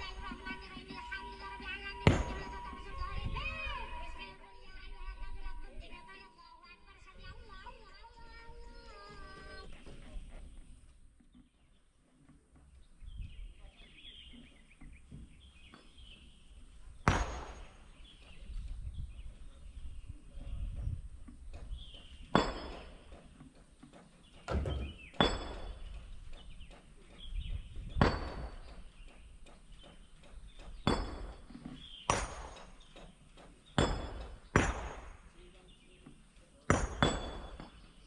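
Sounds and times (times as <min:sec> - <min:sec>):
metallic clanks and knocks: 0:20.8 - 0:35.4.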